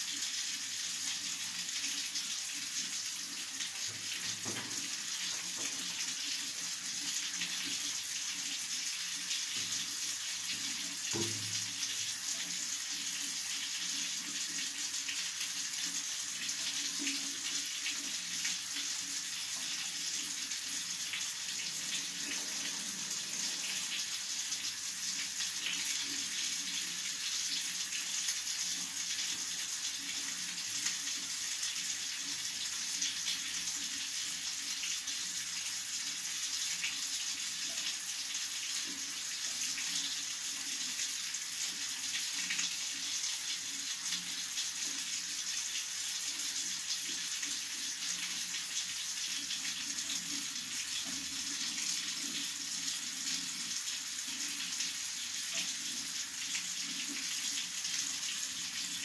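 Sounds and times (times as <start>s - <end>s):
tap water splashing into basin: 3.8s - 6.2s, 9.4s - 9.9s, 10.5s - 12.2s.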